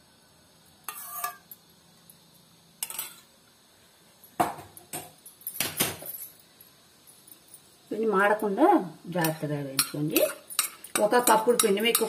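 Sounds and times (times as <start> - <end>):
metal clinking and scraping on pan: 0.8 - 1.6, 2.8 - 3.3, 9.2 - 12.0.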